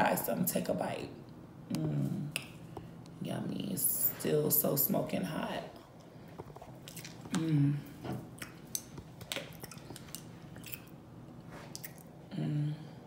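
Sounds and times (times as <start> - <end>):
close chewing with mouth clicks: 5.8 - 7.4, 8.2 - 12.2
person humming: 7.3 - 8.0, 12.3 - 13.0.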